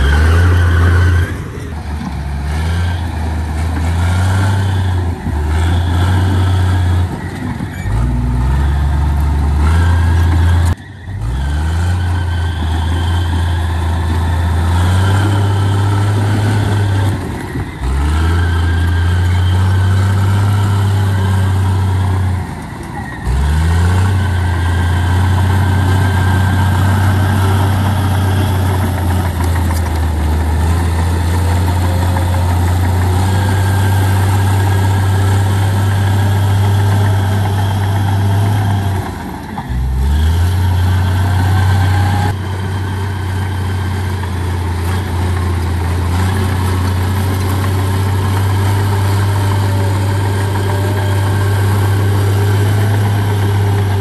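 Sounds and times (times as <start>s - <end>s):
heavy diesel engine running: 0.0s - 54.0s.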